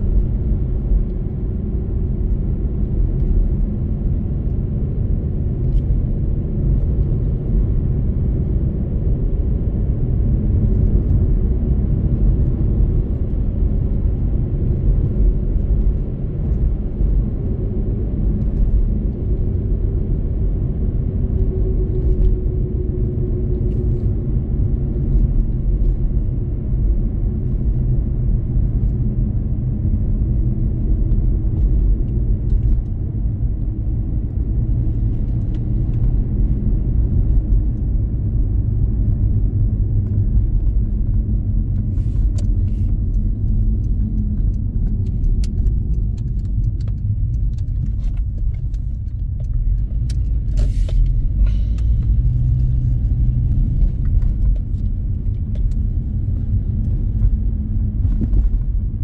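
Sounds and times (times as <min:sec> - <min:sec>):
car engine running: 0:20.7 - 0:59.0.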